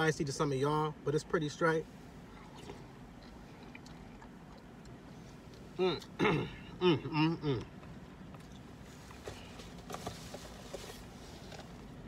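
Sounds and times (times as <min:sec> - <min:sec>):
quiet chewing: 0:02.3 - 0:06.2.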